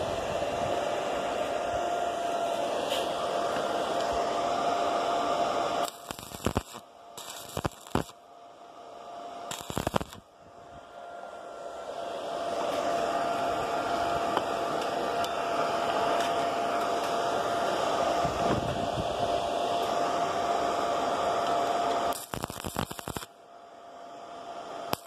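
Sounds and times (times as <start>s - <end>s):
steady machine noise: 0.0s - 25.0s
arc welding bursts: 5.8s - 8.2s, 9.5s - 10.3s, 22.1s - 23.4s.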